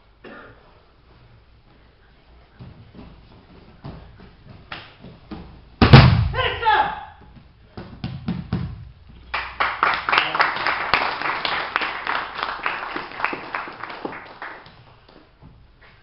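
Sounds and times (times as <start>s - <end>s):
small group clapping: 9.3s - 15.4s.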